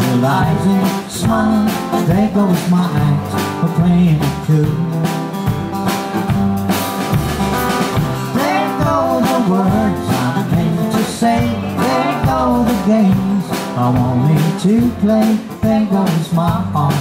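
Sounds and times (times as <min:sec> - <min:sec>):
plucked guitar: 0:00.0 - 0:17.0
steady bass line: 0:00.0 - 0:17.0
bending lead melody: 0:04.8 - 0:14.4.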